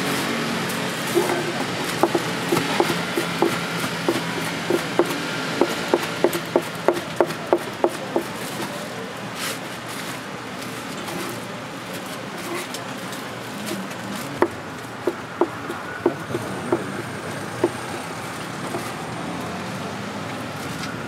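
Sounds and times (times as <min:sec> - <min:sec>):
knife chopping on wooden board: 0:01.1 - 0:08.4, 0:14.4 - 0:18.0, 0:18.6 - 0:19.0.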